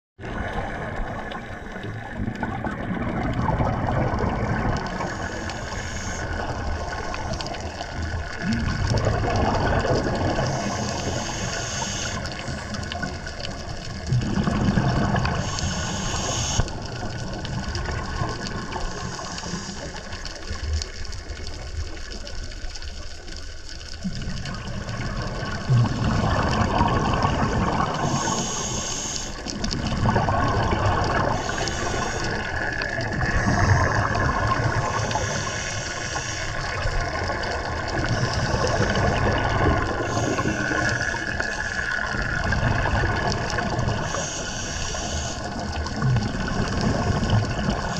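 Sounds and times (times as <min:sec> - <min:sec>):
bubbling exhalations underwater: 0:00.2 - 0:05.5, 0:06.2 - 0:20.6, 0:24.0 - 0:28.8, 0:29.5 - 0:35.6, 0:36.5 - 0:44.4, 0:45.4 - 0:47.9
regulator hissing inhalations: 0:05.0 - 0:07.7, 0:10.4 - 0:12.8, 0:15.4 - 0:16.7, 0:28.0 - 0:29.5, 0:31.3 - 0:32.6, 0:34.8 - 0:36.8, 0:40.0 - 0:41.9, 0:44.0 - 0:45.6.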